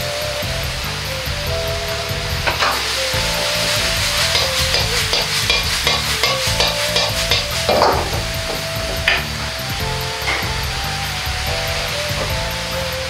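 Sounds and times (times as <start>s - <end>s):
stir-fry sizzling in a wok: 0.0s - 13.0s
metal ladle scraping a wok: 2.5s - 8.2s.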